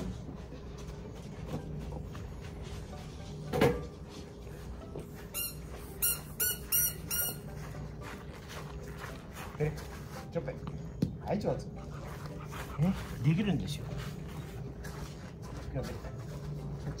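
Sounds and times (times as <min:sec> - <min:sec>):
squeaky toy squeaking: 0:05.3 - 0:07.6.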